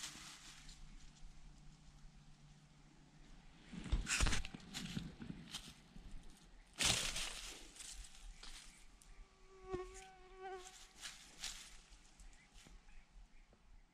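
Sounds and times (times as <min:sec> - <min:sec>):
dry grass and leaves rustling: 0:00.0 - 0:09.2, 0:09.8 - 0:13.2
flying insect buzzing: 0:09.4 - 0:11.0.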